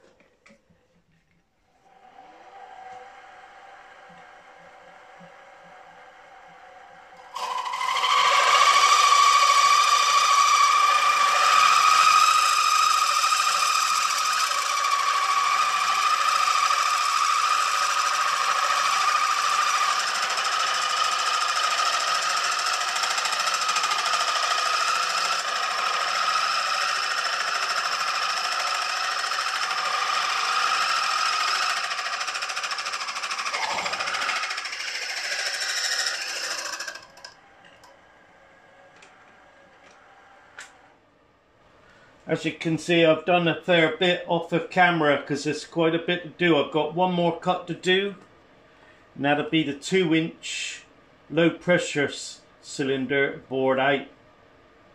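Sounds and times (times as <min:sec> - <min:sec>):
milling machine cutting metal: 0:02.0 - 0:40.8.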